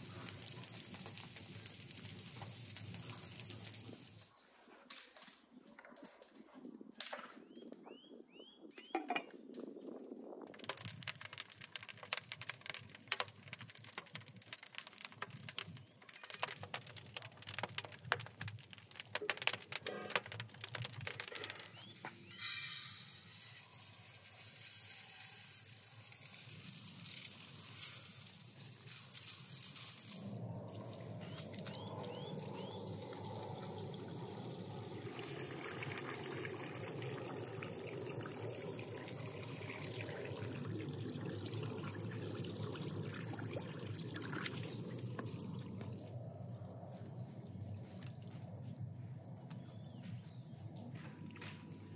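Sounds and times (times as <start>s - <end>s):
hose water splashing into bowl: 0.0s - 4.3s, 10.5s - 30.4s, 32.9s - 46.0s
rice poured into metal bowl: 0.0s - 4.3s, 10.5s - 30.4s
rice clicking and rattling: 0.0s - 4.4s, 10.5s - 40.6s.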